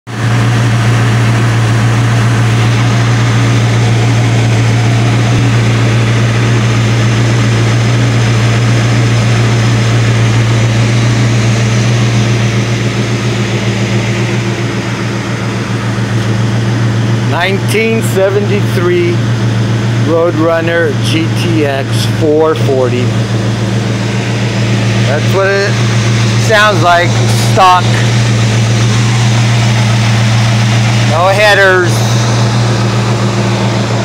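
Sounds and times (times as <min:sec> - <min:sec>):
car engine idling: 0:00.1 - 0:34.0.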